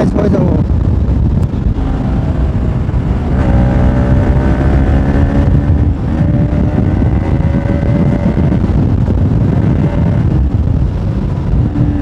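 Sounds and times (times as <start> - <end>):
wind on microphone: 0.0 - 12.0
motorcycle engine revving hard: 1.6 - 12.0.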